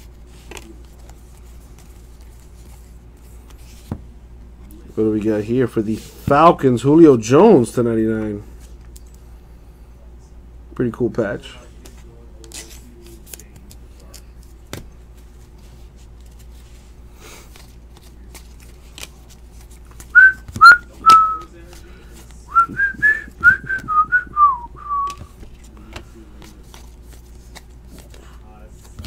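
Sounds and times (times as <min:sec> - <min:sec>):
person whistling: 0:20.2 - 0:21.5, 0:22.5 - 0:25.3.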